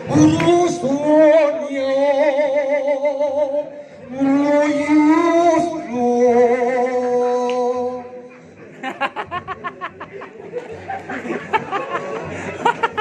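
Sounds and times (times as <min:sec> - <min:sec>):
man singing with vibrato: 0:00.0 - 0:08.3.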